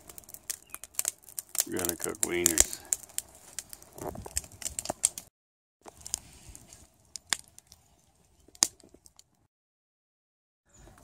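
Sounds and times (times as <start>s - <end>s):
sharp fire pops: 0.0s - 7.5s
wood fire crackling: 0.0s - 9.4s.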